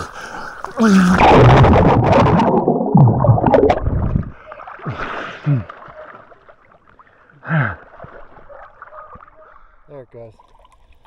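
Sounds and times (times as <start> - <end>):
pool water splashing: 0.0 - 11.0.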